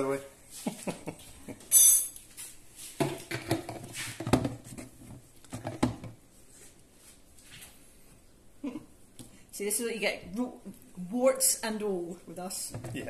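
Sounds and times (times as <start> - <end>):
kitchen things knocking: 3.0 - 4.8, 5.5 - 6.2.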